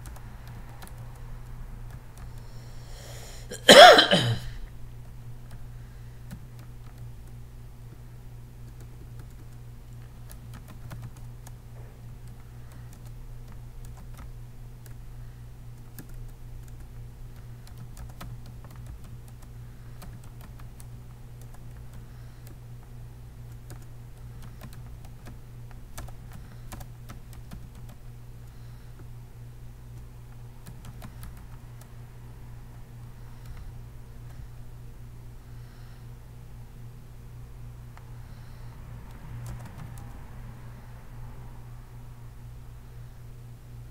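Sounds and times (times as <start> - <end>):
keyboard keys clicking: 0.0 - 2.5, 6.2 - 8.0, 8.6 - 15.0, 15.8 - 22.9, 23.5 - 29.1, 29.9 - 31.9, 39.1 - 40.1
steady low hum: 0.0 - 43.9.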